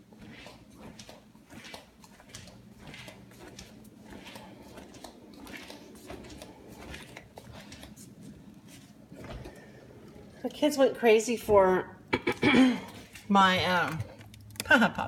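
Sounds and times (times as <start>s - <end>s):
flip-flops slapping on hard floor: 0.0s - 9.4s.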